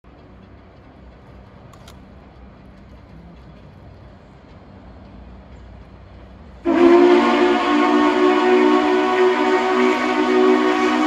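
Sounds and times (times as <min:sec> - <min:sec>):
steam whistle chord: 0:06.6 - 0:11.0.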